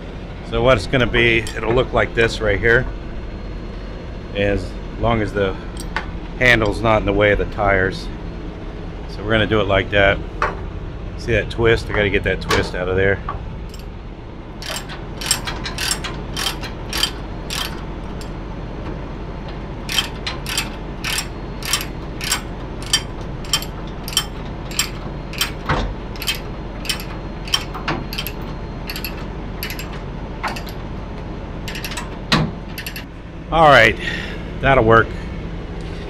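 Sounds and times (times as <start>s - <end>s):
ratchet load binder clicking: 13.7s - 13.9s, 14.6s - 18.3s, 19.4s - 30.9s, 31.6s - 33.1s.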